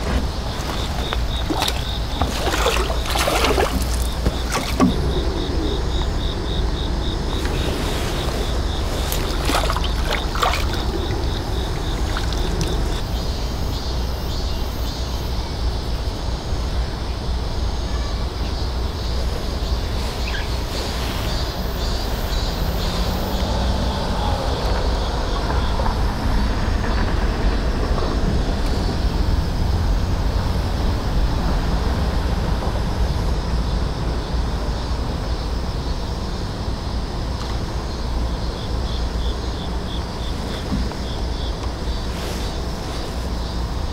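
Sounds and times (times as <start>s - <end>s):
wind buffeting microphone: 0.0s - 13.8s
faint insects chirping: 0.0s - 43.9s.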